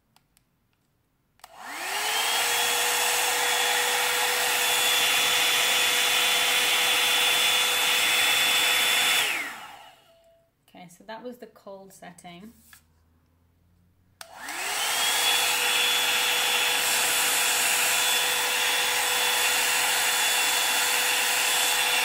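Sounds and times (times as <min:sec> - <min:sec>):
hair dryer fan whine and air rush: 0:01.4 - 0:10.2, 0:14.2 - 0:22.0.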